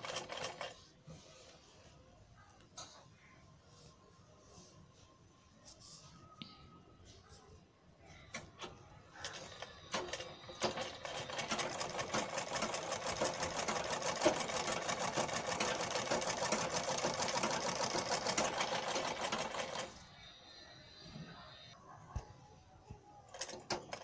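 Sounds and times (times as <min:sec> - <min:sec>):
sewing machine ticking: 0:00.0 - 0:00.7, 0:09.2 - 0:19.9.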